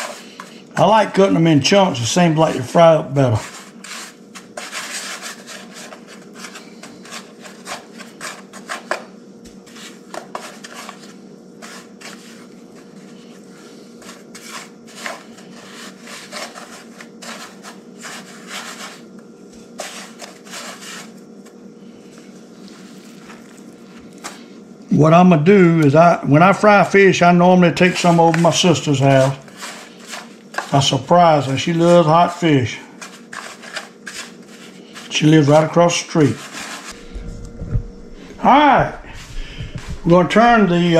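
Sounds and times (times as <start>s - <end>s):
fish rubbed in dry breading: 0.0s - 0.6s, 3.2s - 9.0s, 9.6s - 24.5s, 27.8s - 31.9s, 32.9s - 37.0s
faint steady hum: 0.0s - 40.9s.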